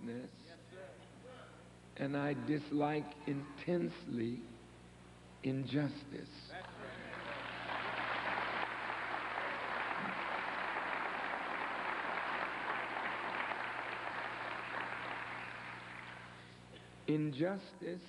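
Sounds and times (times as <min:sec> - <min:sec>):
audience applauding: 0:06.9 - 0:16.5.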